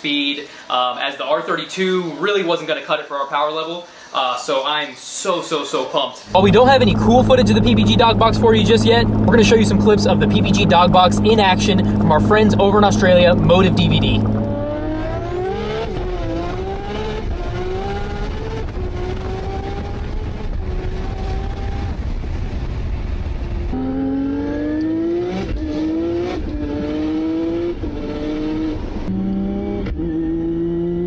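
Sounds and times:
car engine accelerating with upshifts: 0:06.3 - 0:31.0.

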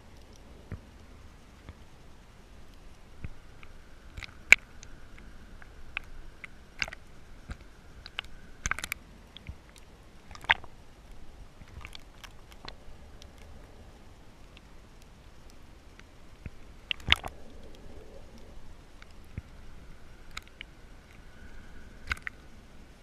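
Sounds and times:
faint steady whine: 0:00.0 - 0:23.0
underwater clicks and snaps: 0:02.7 - 0:13.7, 0:14.4 - 0:19.6, 0:20.2 - 0:21.4, 0:22.0 - 0:22.4.

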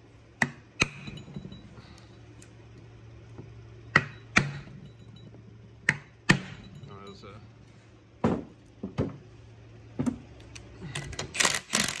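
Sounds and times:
hammer striking wood block: 0:03.9 - 0:04.7, 0:05.8 - 0:06.6
light metallic ring: 0:04.1 - 0:05.4, 0:06.5 - 0:07.5.

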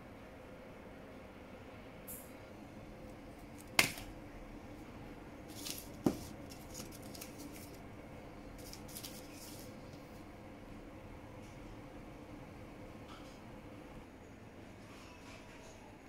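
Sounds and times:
foil sachets crinkling: 0:05.5 - 0:07.8, 0:08.6 - 0:09.8.

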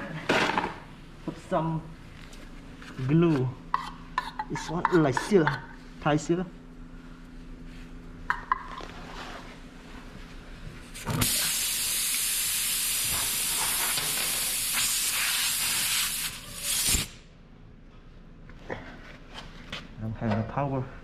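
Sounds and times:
air hissing out of tire: 0:11.0 - 0:17.2.

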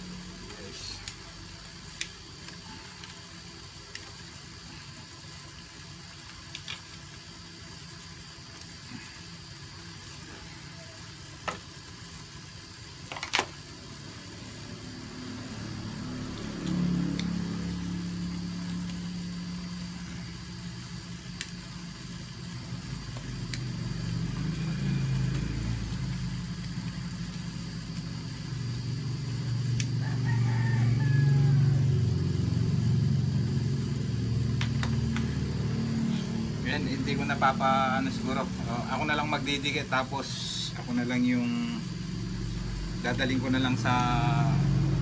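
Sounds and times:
vehicle engine running: 0:00.0 - 0:03.8, 0:04.5 - 0:45.0
rooster crowing: 0:29.8 - 0:32.8.

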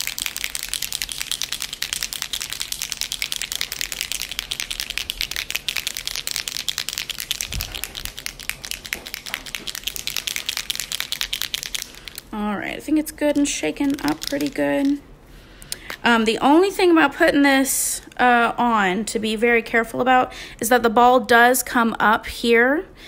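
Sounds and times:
ball rattling in shaken bottle: 0:00.0 - 0:15.0.

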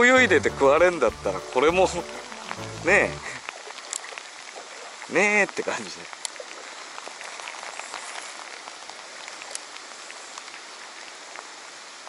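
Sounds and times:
rain falling on water: 0:00.0 - 0:12.0.

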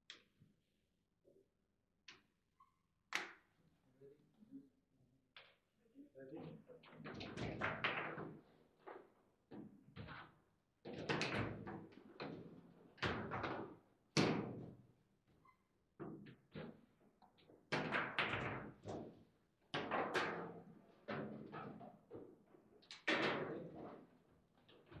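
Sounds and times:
table football knocks and clacks: 0:06.8 - 0:14.8, 0:17.7 - 0:19.1.

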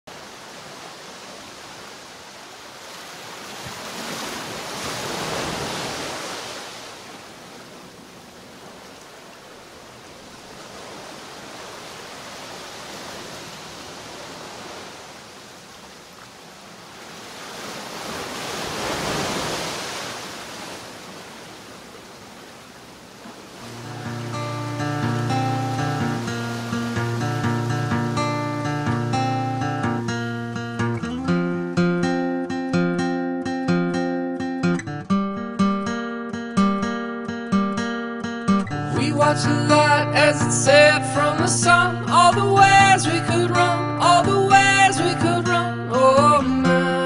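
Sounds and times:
ocean waves washing: 0:00.1 - 0:32.7
acoustic guitar music: 0:23.6 - 0:47.0.

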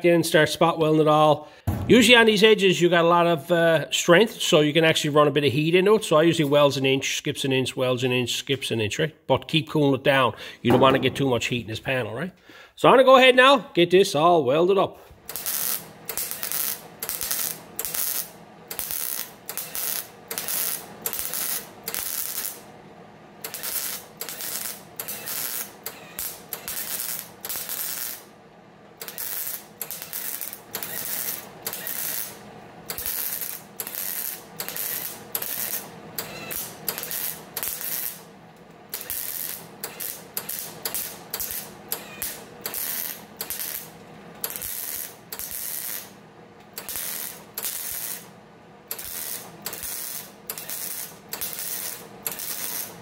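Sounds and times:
welder crackling bursts: 0:15.2 - 0:22.7, 0:23.4 - 0:28.3, 0:28.9 - 0:48.3, 0:48.9 - 0:53.0.

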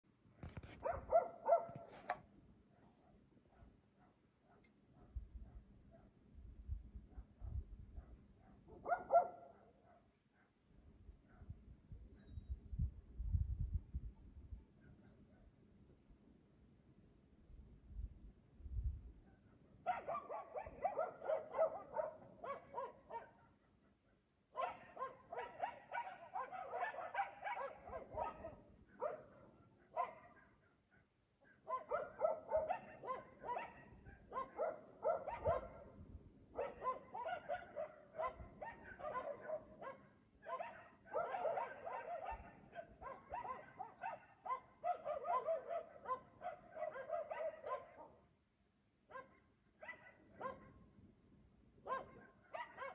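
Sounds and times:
dog barking: 0:00.6 - 0:06.2, 0:07.1 - 0:10.6, 0:11.2 - 0:11.6, 0:14.8 - 0:15.5, 0:19.3 - 0:48.3, 0:49.1 - 0:50.8, 0:51.8 - 0:52.9.

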